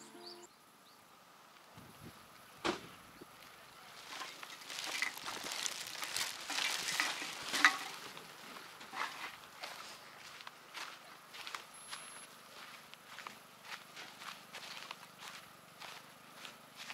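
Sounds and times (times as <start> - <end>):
footsteps through grass: 3.4 - 16.9.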